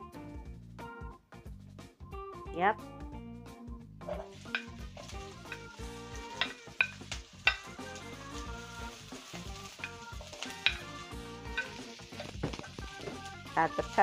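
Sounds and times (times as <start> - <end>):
vegetables sizzling in a pan: 4.0 - 14.0
wooden utensil clicking on plate: 4.1 - 7.8, 9.2 - 13.3.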